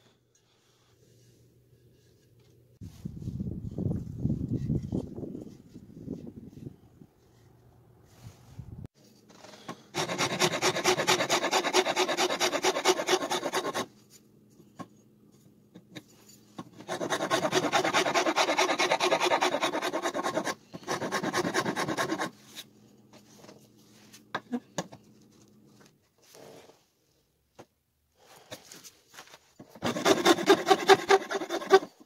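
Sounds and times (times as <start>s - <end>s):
metal file rasping wood: 9.7s - 13.9s, 16.7s - 22.4s, 29.8s - 32.0s.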